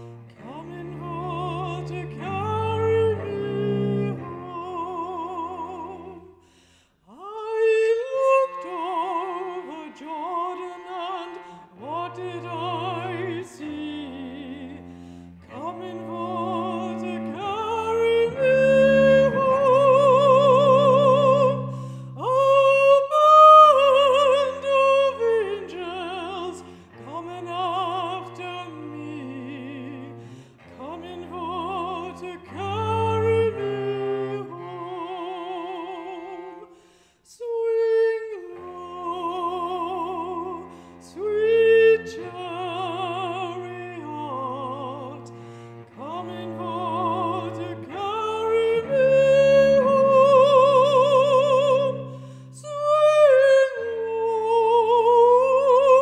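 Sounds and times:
cello low sustained notes: 0:00.0 - 0:06.3, 0:08.0 - 0:36.7, 0:38.4 - 0:56.0
woman singing with vibrato: 0:07.1 - 0:14.9, 0:15.5 - 0:36.6, 0:45.9 - 0:56.0.

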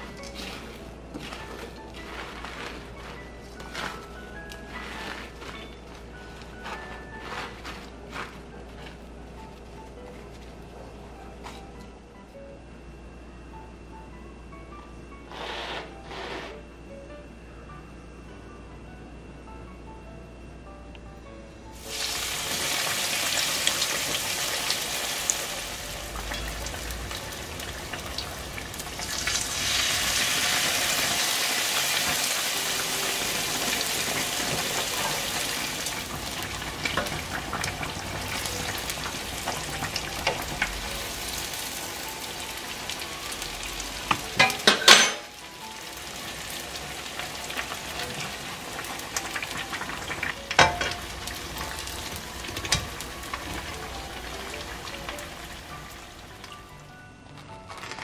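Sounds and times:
hot dogs sizzling in oil: 0:21.8 - 0:56.7.

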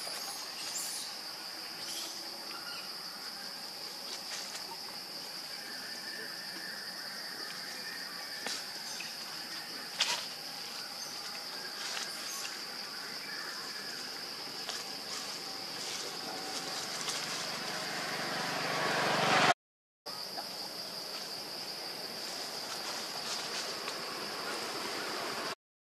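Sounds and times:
insect drone: 0:00.0 - 0:25.6
rushing noise: 0:15.1 - 0:19.6.

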